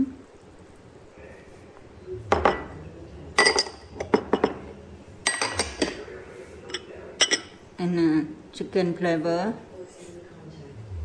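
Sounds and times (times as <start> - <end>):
glass bowls clinking: 3.4 - 7.6.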